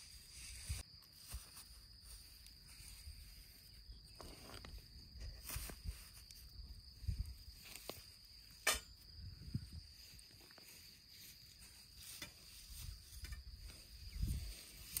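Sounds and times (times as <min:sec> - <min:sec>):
grass rustling: 0:00.0 - 0:15.0
insects buzzing: 0:00.0 - 0:15.0.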